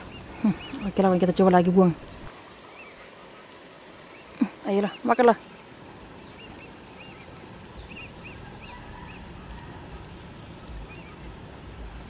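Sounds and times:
faint background noise: 0.0s - 12.0s
bird chirping: 6.2s - 11.4s.

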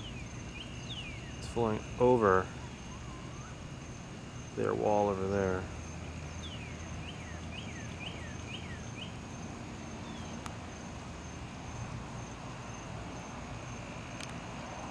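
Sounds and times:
bird chirping: 0.0s - 10.5s
high insect buzz: 0.0s - 14.9s.

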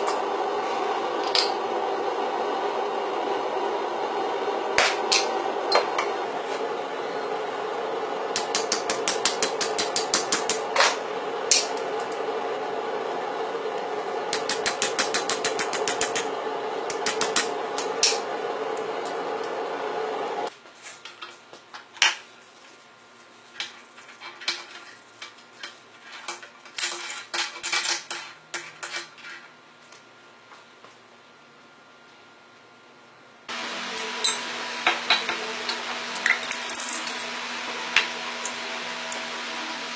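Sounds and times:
steady hum: 0.0s - 20.5s, 33.4s - 39.9s
hammer striking hot steel on anvil: 4.8s - 6.1s, 8.3s - 11.8s, 14.3s - 16.3s, 34.0s - 37.2s.

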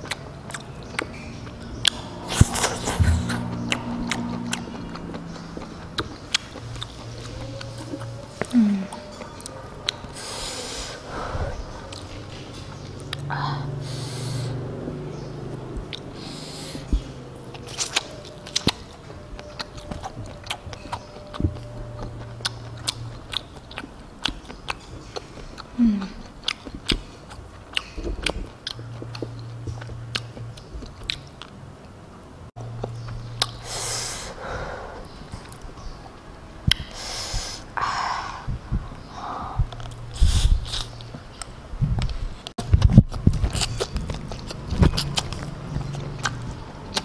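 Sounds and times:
chewing and biting food: 0.0s - 10.2s, 14.5s - 31.6s, 32.6s - 33.7s, 39.7s - 47.0s.

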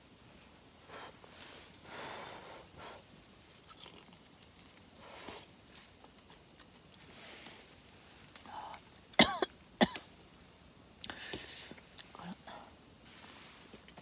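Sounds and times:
breathy puffs and sniffs: 0.8s - 3.1s
person chewing: 3.6s - 4.8s.

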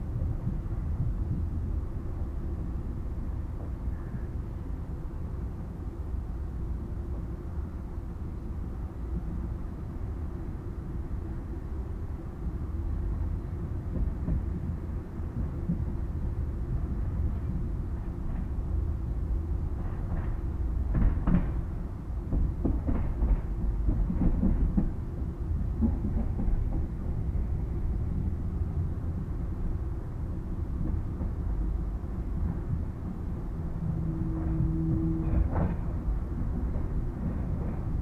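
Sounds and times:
train wheels rumbling: 11.6s - 38.0s.

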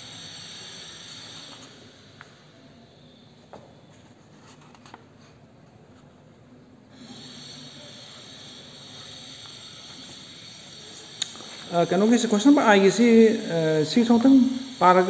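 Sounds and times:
handling of books: 3.9s - 6.2s
steady high hiss: 7.0s - 15.0s.

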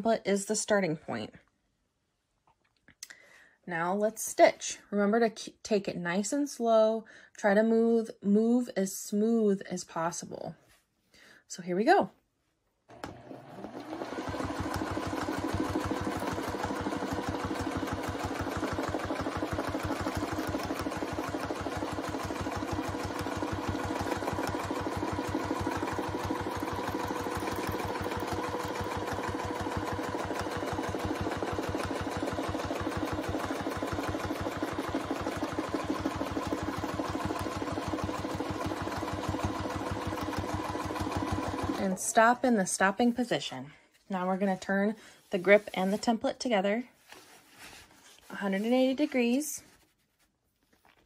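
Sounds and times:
sewing machine stitching: 12.9s - 42.2s.

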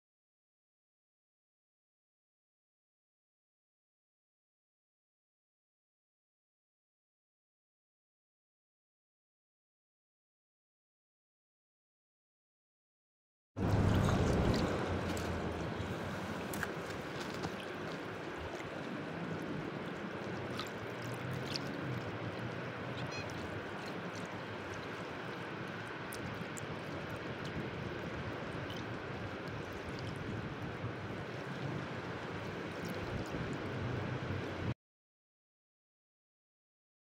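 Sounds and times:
low rumble: 13.6s - 23.8s
small splashes and drips: 13.6s - 34.7s
small waves lapping shore: 13.6s - 34.7s.

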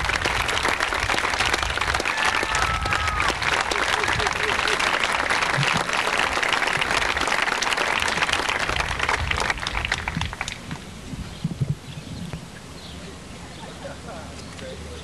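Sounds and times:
crowd applauding: 0.0s - 10.6s.

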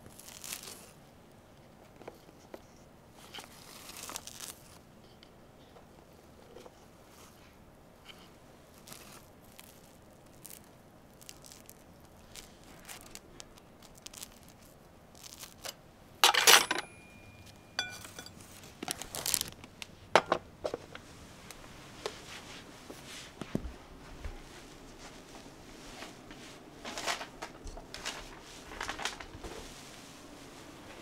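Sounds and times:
metal utensil clinking on ceramic bowl: 16.2s - 18.4s.

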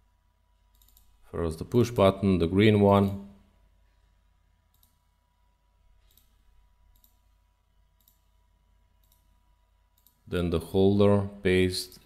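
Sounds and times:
computer mouse clicks: 0.7s - 1.2s, 4.7s - 5.0s, 6.0s - 8.3s, 9.0s - 10.2s.

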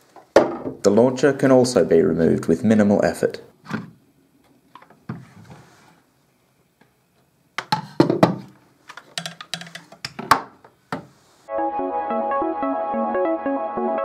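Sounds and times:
wooden parts knocking and clicking: 7.6s - 11.1s.

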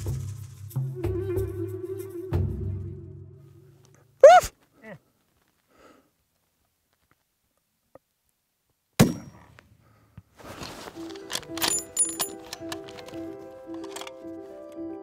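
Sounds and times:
music with held notes: 0.0s - 3.8s, 10.8s - 15.0s
rifle shot: 9.0s - 9.4s.

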